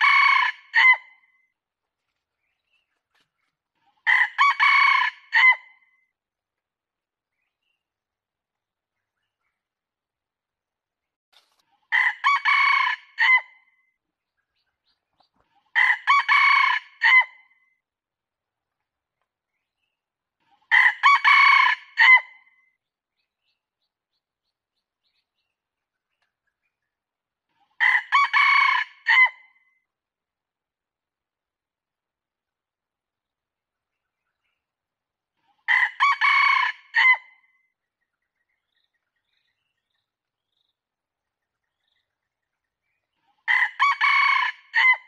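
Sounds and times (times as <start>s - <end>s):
rooster crowing: 0.0s - 1.0s, 4.1s - 5.6s, 12.0s - 13.4s, 15.8s - 17.3s, 20.7s - 22.3s, 27.8s - 29.4s, 35.7s - 37.2s, 43.5s - 45.0s.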